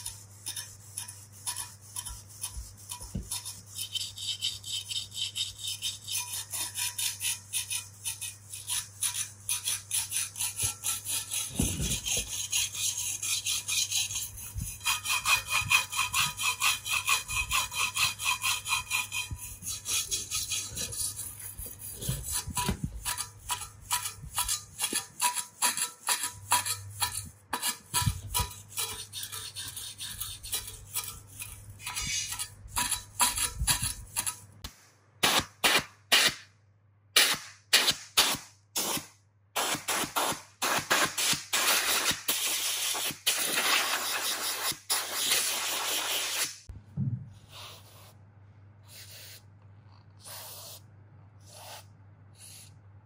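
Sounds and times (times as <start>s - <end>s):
wire brush scraping metal: 0.0s - 34.4s.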